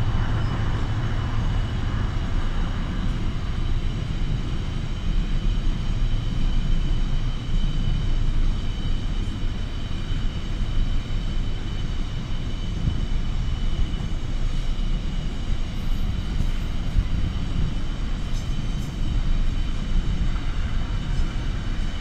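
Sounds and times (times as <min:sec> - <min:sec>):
freight train wagons rumbling: 0:00.0 - 0:10.0
high-pitched whine: 0:00.0 - 0:22.0.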